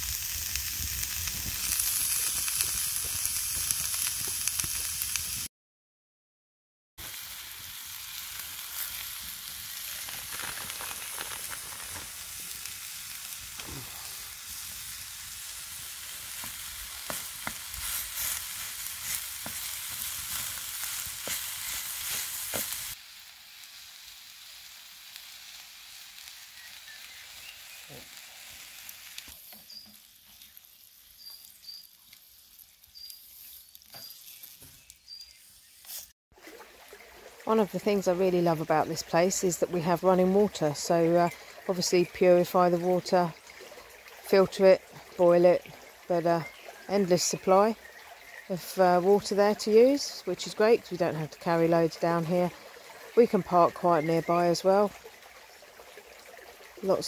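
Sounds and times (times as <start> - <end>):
mince sizzling softly in pan: 0.0 - 5.5, 7.0 - 57.0
vegetables sizzling in frying pan: 0.0 - 5.5, 7.0 - 36.1.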